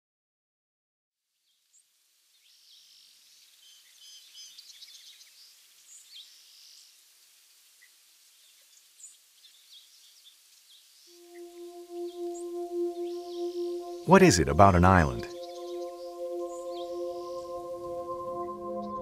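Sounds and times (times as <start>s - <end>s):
steady background hiss: 1.8s - 18.8s
small birds chirping: 7.8s - 11.1s.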